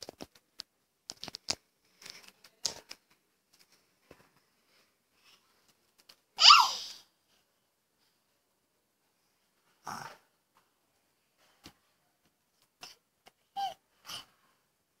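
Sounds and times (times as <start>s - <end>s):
baby squealing: 6.4s - 6.8s.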